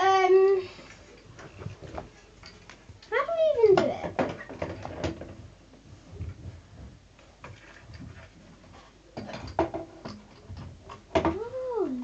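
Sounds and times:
plastic parts knocking and rattling: 3.6s - 8.4s, 9.2s - 11.5s.

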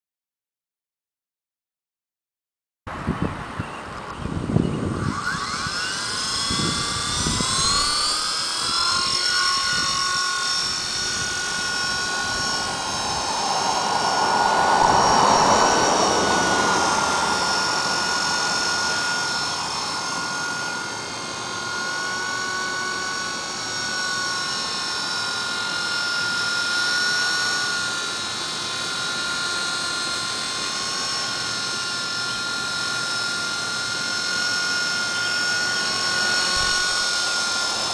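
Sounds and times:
rc helicopter motor whine: 3.0s - 37.9s
rotor rushing swell: 5.4s - 24.3s.

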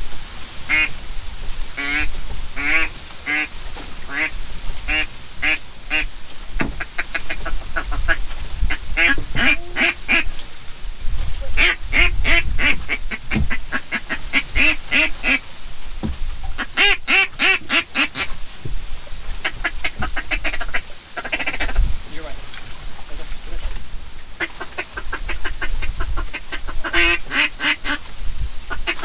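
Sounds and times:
duck call notes: 0.7s - 0.9s, 1.8s - 3.5s, 4.1s - 4.3s, 4.9s - 10.4s, 11.4s - 15.4s, 16.6s - 18.4s, 19.4s - 21.8s, 24.4s - 28.0s, 28.7s - 29.0s.

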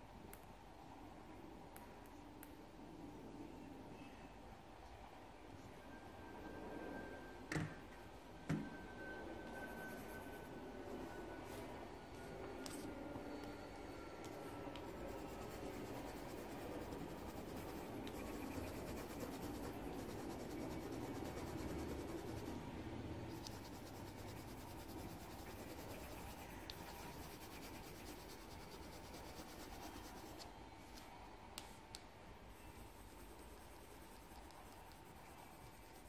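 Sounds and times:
pencil scratching on paper: 14.3s - 22.6s, 23.3s - 30.5s, 32.6s - 36.0s.

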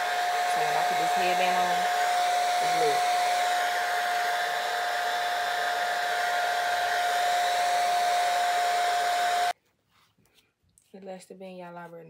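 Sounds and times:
hair dryer blowing: 0.0s - 9.6s.

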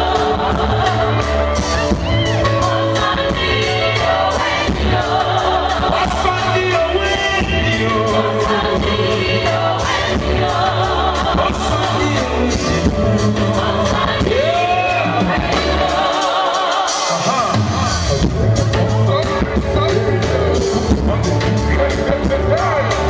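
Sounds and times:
band with pulsing bass beat: 0.0s - 23.0s
man singing into a microphone: 6.0s - 8.5s, 19.0s - 23.0s.

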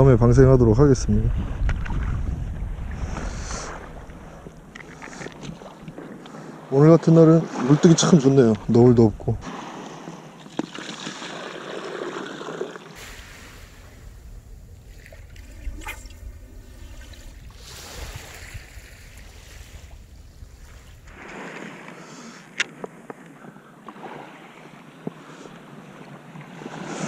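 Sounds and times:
wind rumbling on microphone: 0.0s - 6.2s, 8.5s - 9.4s, 13.0s - 22.0s
gentle surf: 0.3s - 27.0s.

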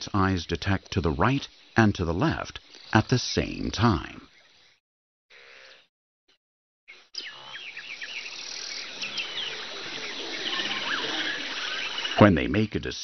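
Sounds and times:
small birds chirping: 0.0s - 4.8s, 6.9s - 12.9s
insects hissing: 0.1s - 4.8s, 7.3s - 12.8s.

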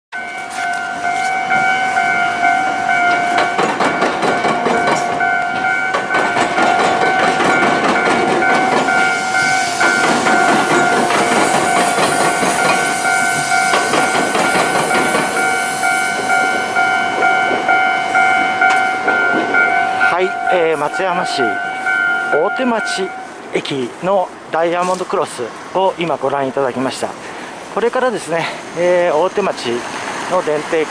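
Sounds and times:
level crossing alarm ringing: 0.1s - 23.4s
train wheels clattering: 0.2s - 23.9s.

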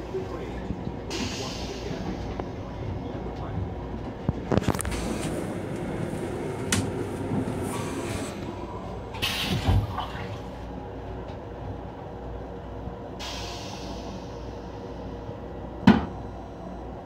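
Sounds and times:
low rumble of train: 0.0s - 17.0s
hiss: 13.2s - 14.4s.

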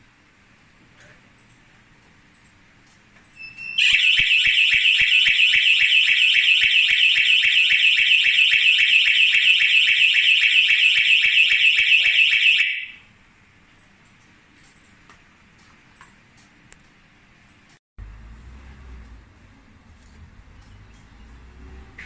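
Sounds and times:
alarm siren pulsing high tone: 3.7s - 13.1s.

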